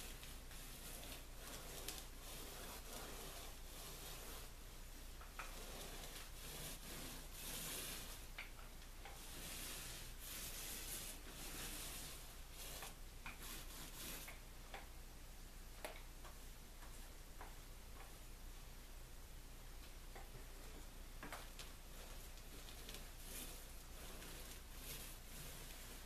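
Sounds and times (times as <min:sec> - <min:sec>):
paint applicator swishing strokes: 0:00.0 - 0:14.4, 0:20.5 - 0:26.0.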